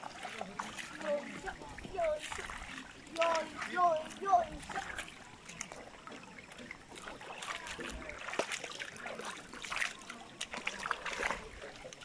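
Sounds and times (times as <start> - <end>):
feet splashing in stream: 0.0 - 12.0
trickle of running water: 0.0 - 12.0.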